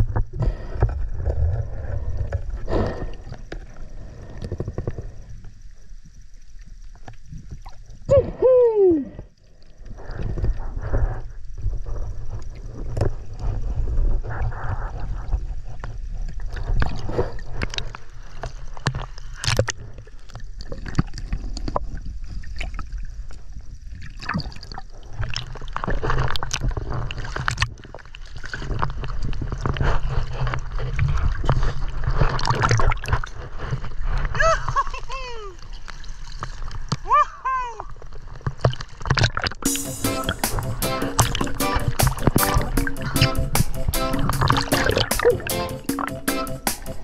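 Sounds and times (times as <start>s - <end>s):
underwater rumble: 0.0s - 37.1s.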